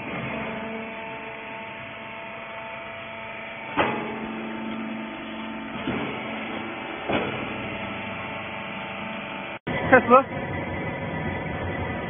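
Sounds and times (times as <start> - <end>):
electric motor and pump humming: 0.0 - 12.0
machine clunks: 3.6 - 9.3.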